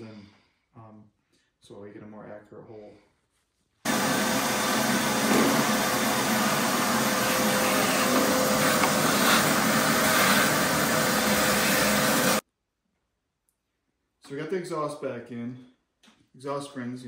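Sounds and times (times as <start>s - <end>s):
shop vacuum running: 3.9s - 12.4s.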